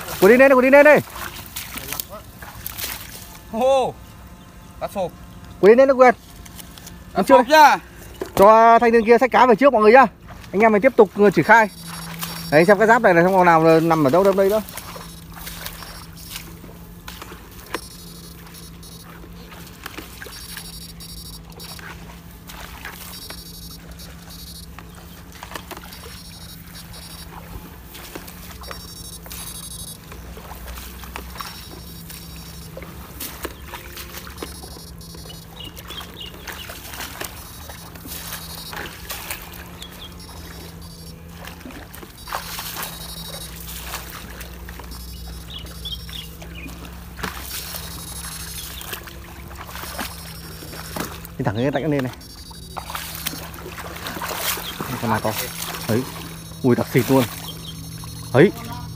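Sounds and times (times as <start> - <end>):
electrofishing unit humming: 0.0 - 58.9
high-pitched buzzing: 11.3 - 58.9
clicks: 17.7 - 19.1.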